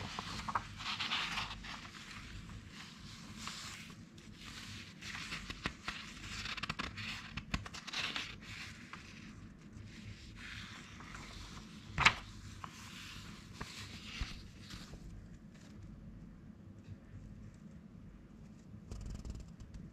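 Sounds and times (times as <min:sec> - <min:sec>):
loud paper crackle: 0:00.0 - 0:09.3, 0:10.4 - 0:14.8
pages rustling and sliding: 0:00.0 - 0:15.8.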